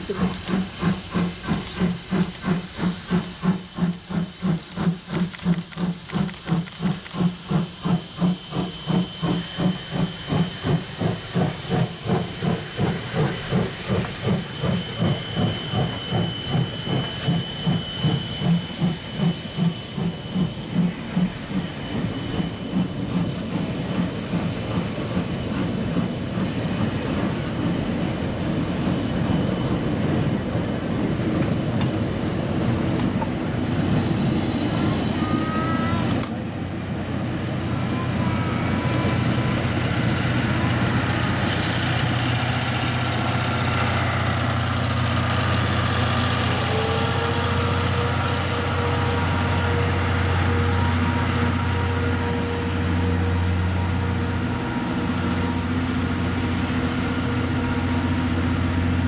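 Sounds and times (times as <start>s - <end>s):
rolling train coaches: 0.0s - 59.0s
steam locomotive chuffing: 0.0s - 59.0s
brief high squeals: 34.8s - 36.2s.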